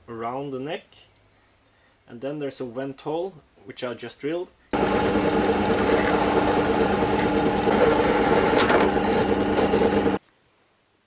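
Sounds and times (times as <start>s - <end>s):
drill press motor running: 4.8s - 10.2s.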